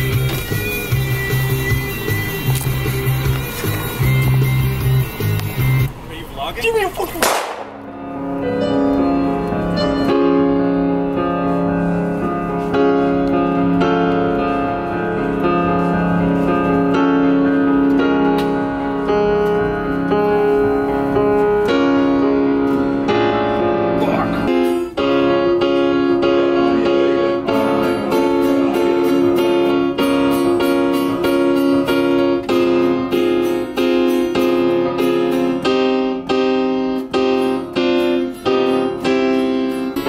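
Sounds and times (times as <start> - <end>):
electric piano chords: 7.2 - 40.0
music with sweeping glide: 8.0 - 36.0.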